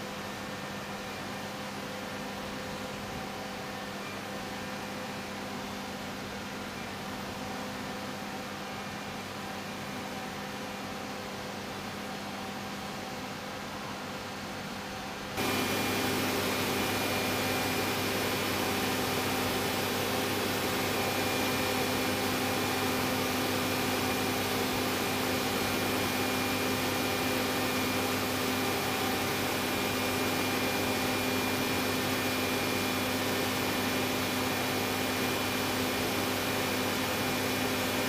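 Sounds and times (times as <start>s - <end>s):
thin high whine: 15.4s - 32.4s.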